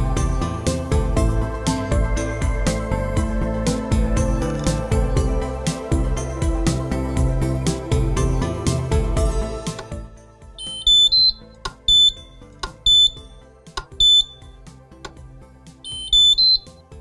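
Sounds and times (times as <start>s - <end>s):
rising three-note chirp: 10.6s - 13.4s, 14.0s - 14.4s, 15.8s - 16.8s
high electronic beeps: 10.6s - 14.6s, 15.8s - 16.8s.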